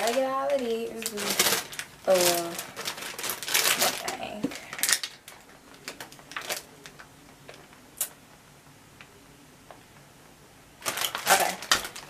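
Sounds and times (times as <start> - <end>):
plastic snack bag crinkling: 0.0 - 7.8, 10.8 - 12.0.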